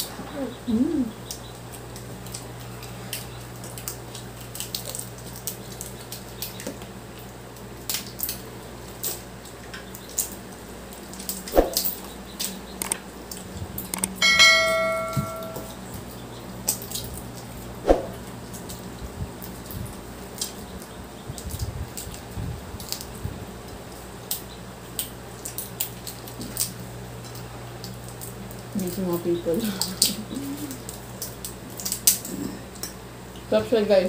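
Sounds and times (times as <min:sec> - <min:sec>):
shells cracking and squishing: 0:01.2 - 0:14.2, 0:22.8 - 0:28.8, 0:29.8 - 0:33.0
steady low hum: 0:08.4 - 0:34.0
bright ringing clink: 0:14.2 - 0:15.8.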